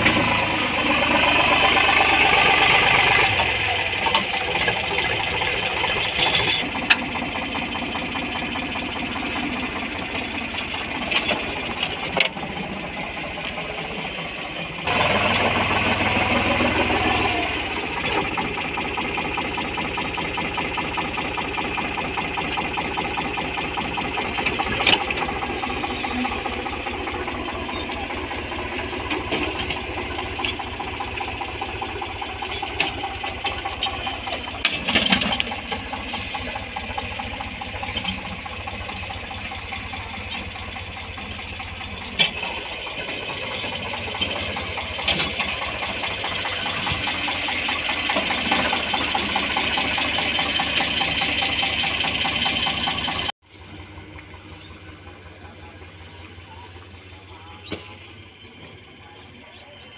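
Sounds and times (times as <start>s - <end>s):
tractor diesel engine running: 0.0s - 59.9s
sharp metallic clanks: 5.8s - 7.1s.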